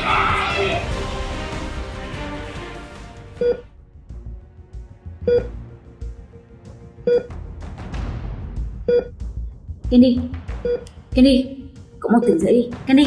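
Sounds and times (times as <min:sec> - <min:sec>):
soft background music: 0:00.0 - 0:13.0.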